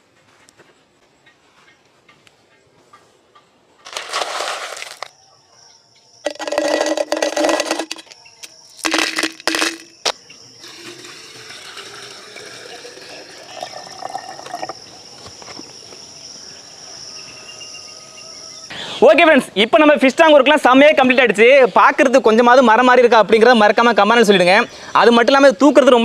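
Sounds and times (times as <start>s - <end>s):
high insect buzz: 6.2s - 18.7s
water splashing into a tank: 10.6s - 14.8s.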